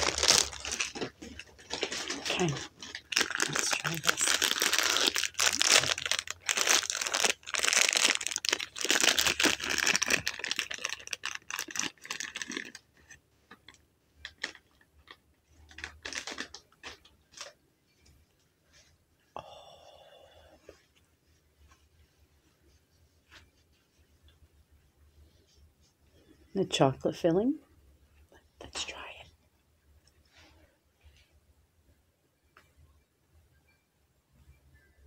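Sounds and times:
plastic bag crinkling: 0.0 - 17.6.

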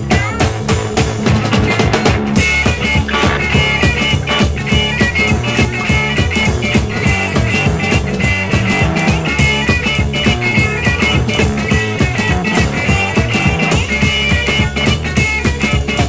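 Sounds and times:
distorted electric guitars: 0.0 - 16.0
drum kit: 0.0 - 16.0.

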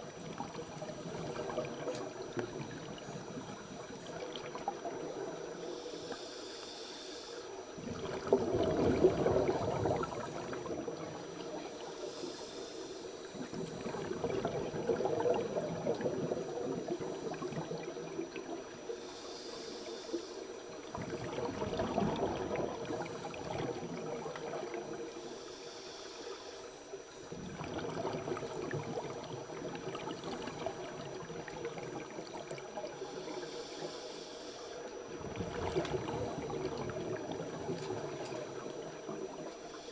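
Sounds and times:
exhaled bubbles burbling underwater: 0.0 - 5.6, 7.6 - 12.0, 13.2 - 19.1, 20.5 - 25.2, 26.8 - 33.8, 34.8 - 39.9
regulator inhale hiss: 5.5 - 7.8, 11.6 - 13.8, 18.8 - 21.0, 25.0 - 27.3, 32.8 - 35.0, 39.4 - 39.9.

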